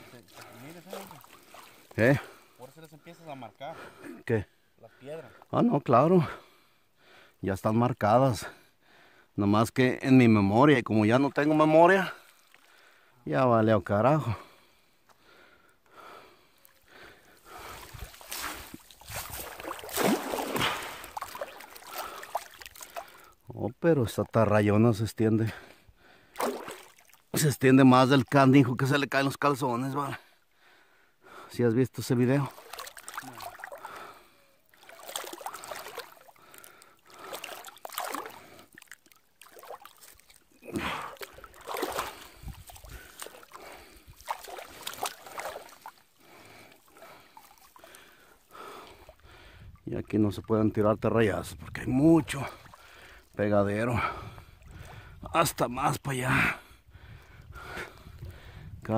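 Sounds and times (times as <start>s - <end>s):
net swishing and splashing: 0.6s - 1.8s, 17.6s - 23.1s, 26.4s - 27.2s, 34.8s - 36.6s, 37.3s - 40.5s, 41.1s - 46.1s
water dripping: 16.6s - 23.3s, 32.4s - 34.1s, 34.7s - 49.2s.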